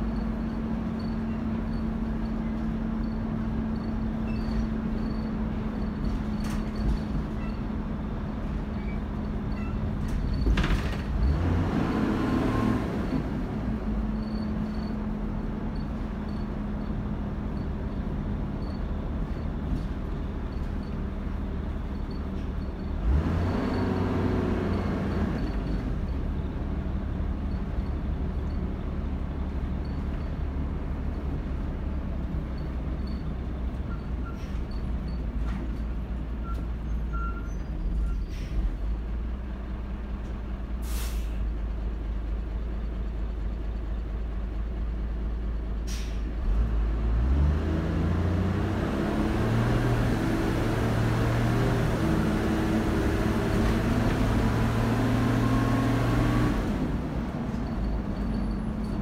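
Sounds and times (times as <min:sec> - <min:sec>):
bus engine rumble: 0:00.0 - 0:59.0
air brake hisses: 0:38.2 - 0:38.8, 0:40.8 - 0:41.5, 0:45.8 - 0:46.3.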